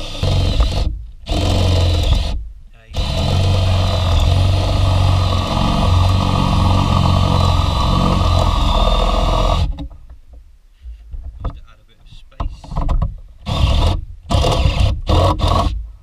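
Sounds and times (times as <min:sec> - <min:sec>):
cordless drill boring into plastic: 0:00.0 - 0:02.4, 0:03.0 - 0:09.7, 0:13.4 - 0:15.8.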